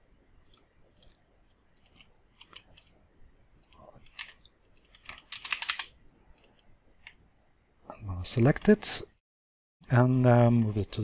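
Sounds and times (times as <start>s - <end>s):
computer mouse clicks: 0.4s - 3.0s, 3.6s - 7.2s.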